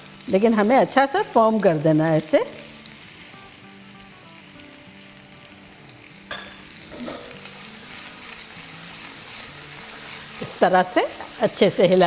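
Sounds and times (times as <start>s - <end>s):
meatballs sizzling in frying pan: 0.0s - 12.0s
spoon knocking pan: 6.3s - 7.5s.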